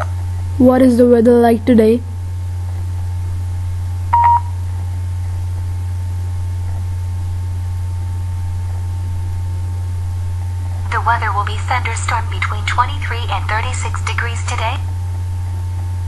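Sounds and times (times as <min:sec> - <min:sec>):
low electrical hum: 0:00.0 - 0:16.0
short electronic beep: 0:04.1 - 0:04.5.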